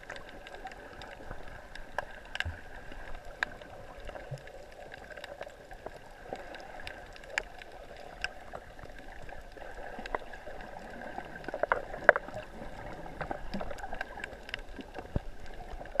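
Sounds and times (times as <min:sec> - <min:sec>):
underwater clicks and snaps: 0:00.0 - 0:16.0
underwater low hum: 0:00.0 - 0:16.0.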